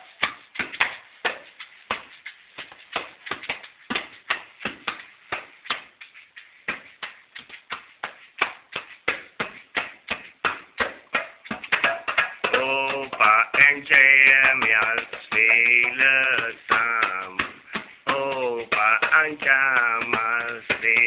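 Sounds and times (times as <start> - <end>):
person singing: 12.4 - 21.0.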